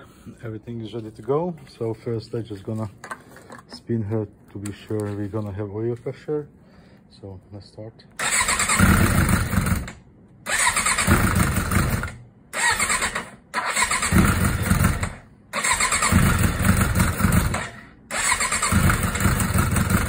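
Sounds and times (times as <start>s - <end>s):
motorcycle engine cranking on starter: 8.2s - 20.0s.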